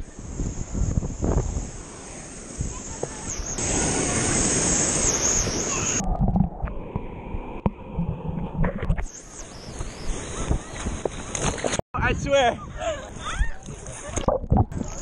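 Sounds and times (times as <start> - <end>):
waves washing in shallows: 0.0 - 6.2
wind on microphone: 0.0 - 15.0.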